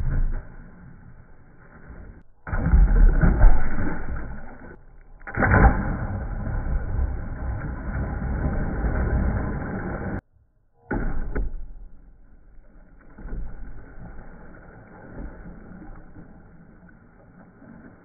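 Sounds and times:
water churning: 0.0 - 10.2, 12.6 - 18.0
heavy splash in water: 2.5 - 10.2
loud sharp splash: 2.5 - 10.2.

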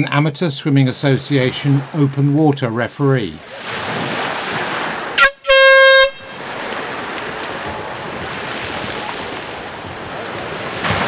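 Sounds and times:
waves washing on shore: 0.5 - 11.0
air horn blast: 5.2 - 6.4.

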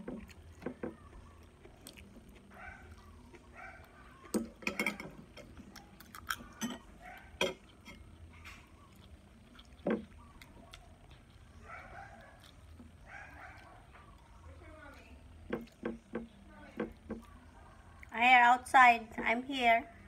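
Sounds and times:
cutlery clinking on a plate: 4.3 - 5.5, 6.3 - 8.0.

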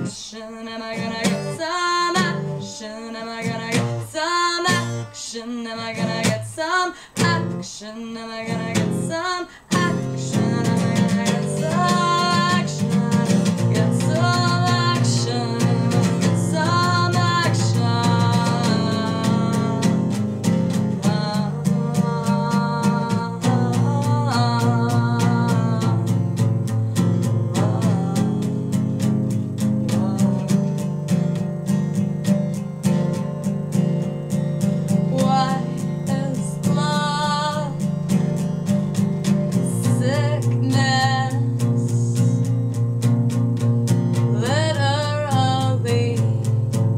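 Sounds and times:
woman singing long notes: 0.0 - 20.2, 20.9 - 26.3, 27.3 - 28.7, 29.7 - 30.6, 35.1 - 37.8, 39.6 - 42.4
acoustic guitar strumming: 0.0 - 46.9.

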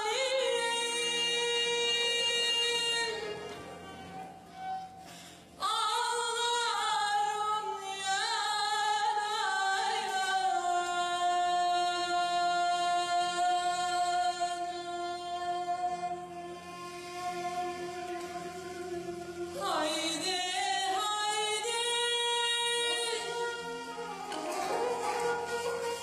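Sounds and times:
woman singing folk song: 0.0 - 3.6, 5.6 - 16.3, 19.6 - 25.2.

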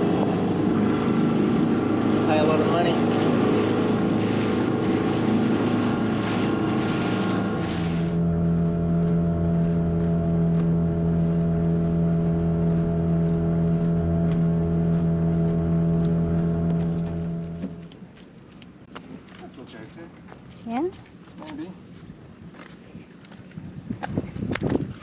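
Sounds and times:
motorboat engine running: 0.0 - 18.9
wind and water rushing: 0.0 - 25.0.

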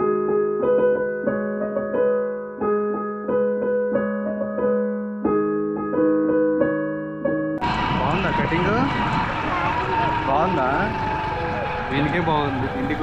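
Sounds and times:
piano-like keyboard melody: 0.0 - 7.6.

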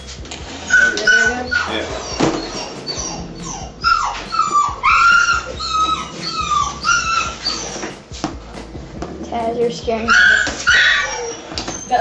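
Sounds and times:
angry cat yowling: 0.6 - 7.9, 10.1 - 12.0.

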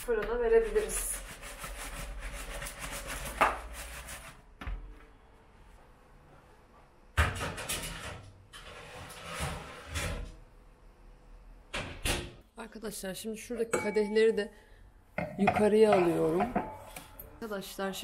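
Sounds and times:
metal tray scraping on countertop: 7.7 - 10.3.

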